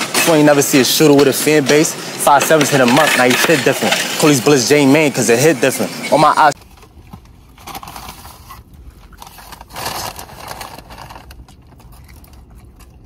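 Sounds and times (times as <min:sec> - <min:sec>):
paper bag rustling: 0:06.6 - 0:12.9
low steady rumble: 0:06.6 - 0:13.0.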